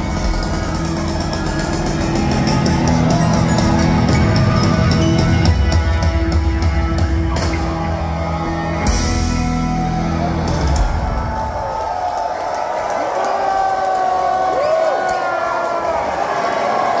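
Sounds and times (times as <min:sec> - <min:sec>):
live rock band playing: 0:00.0 - 0:11.6.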